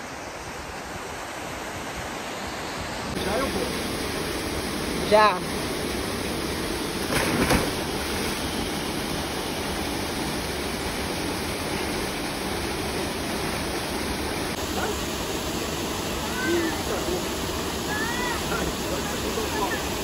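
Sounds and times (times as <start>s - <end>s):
waterfall and stream rushing: 0.0s - 20.0s
person splashing into water: 7.0s - 8.4s.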